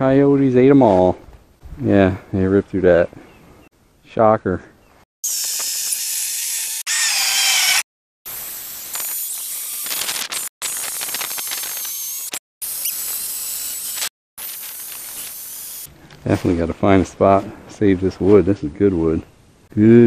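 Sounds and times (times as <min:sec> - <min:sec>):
electric chainsaw cutting log: 0:05.2 - 0:15.9.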